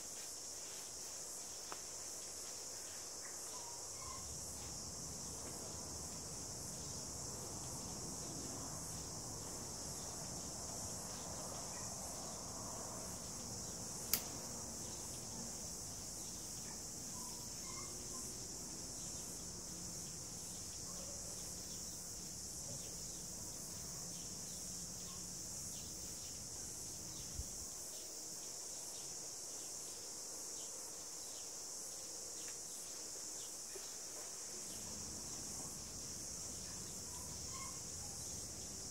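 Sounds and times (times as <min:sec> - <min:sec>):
insects shrilling: 0:13.6 - 0:19.9, 0:34.8 - 0:38.9.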